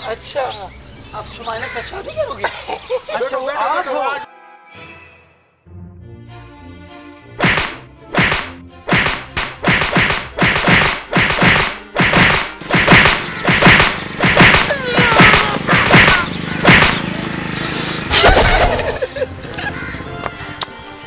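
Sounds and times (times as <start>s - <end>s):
hand slaps and thumps on a body: 7.4s - 17.0s.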